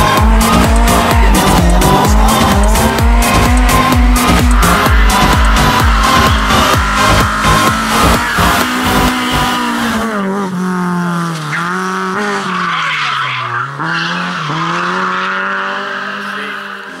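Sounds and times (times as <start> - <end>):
dance music with steady beat: 0.0 - 9.8
rally car engine revving: 0.0 - 17.0.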